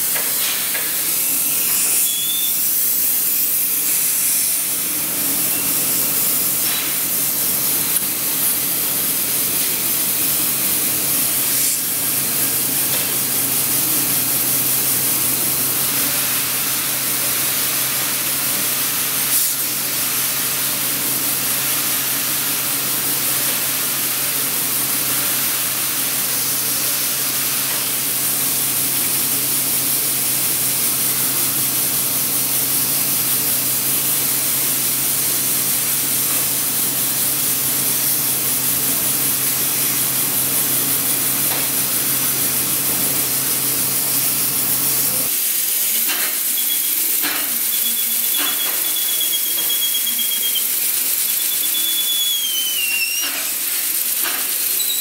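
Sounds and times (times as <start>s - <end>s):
air hissing from cylinder: 0.0s - 55.0s.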